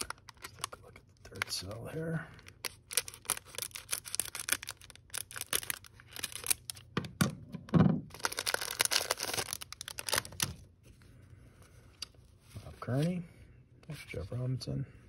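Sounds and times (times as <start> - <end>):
plastic wrapper crinkling and tearing: 0.0 - 1.8, 2.4 - 7.0, 8.1 - 10.7.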